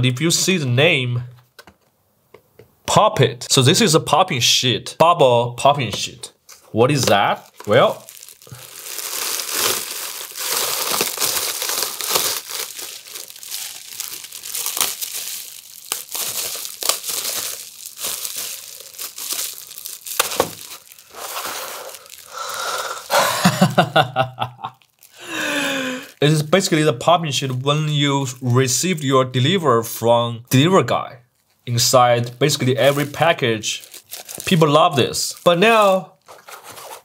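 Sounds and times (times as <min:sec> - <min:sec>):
bubble wrap crinkling: 0:06.4 - 0:28.8, 0:31.3 - 0:37.0.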